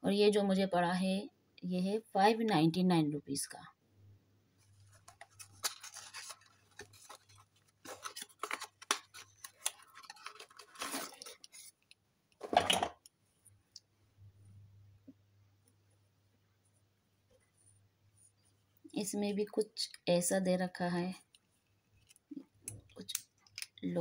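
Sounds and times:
cardboard carton rustling: 4.8s - 11.8s.

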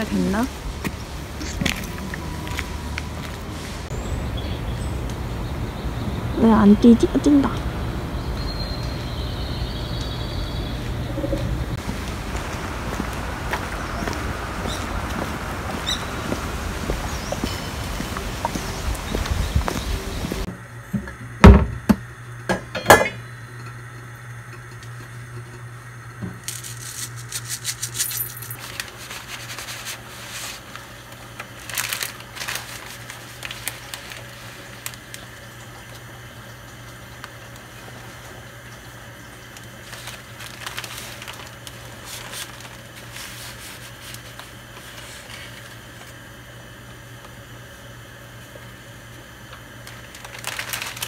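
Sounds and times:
steady low hum: 0.0s - 51.0s
noodles clinking and rustling: 26.4s - 30.8s, 31.4s - 35.2s, 49.8s - 51.0s.

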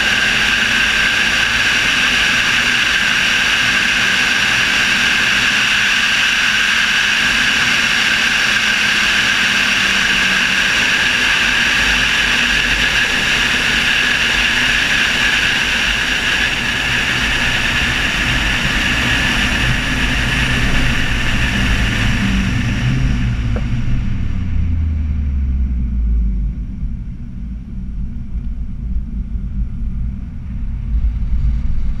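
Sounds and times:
car engine at high speed: 0.0s - 32.0s
high turbo whine: 0.0s - 32.0s
wind rush: 0.0s - 32.0s.

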